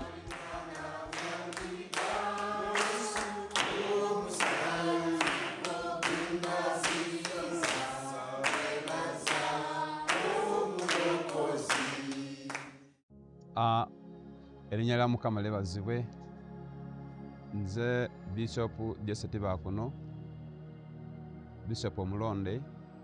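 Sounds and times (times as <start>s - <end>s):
hand clapping: 0.0s - 12.8s
group singing unaccompanied: 0.0s - 12.9s.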